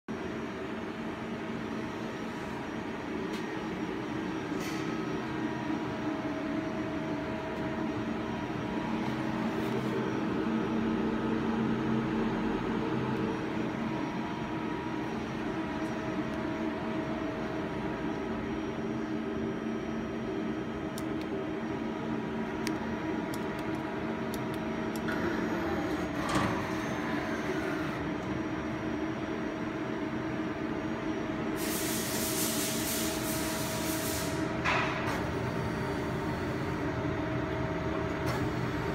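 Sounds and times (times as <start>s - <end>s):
machine hum with steady tones: 0.1s - 38.9s
hiss: 31.6s - 34.5s.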